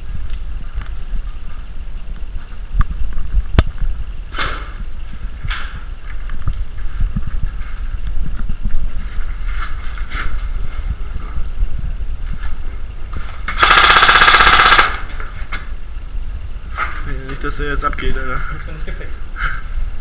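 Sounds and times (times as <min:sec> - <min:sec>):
low microphone rumble: 0:00.0 - 0:20.0
scuffing rustles: 0:00.5 - 0:13.5.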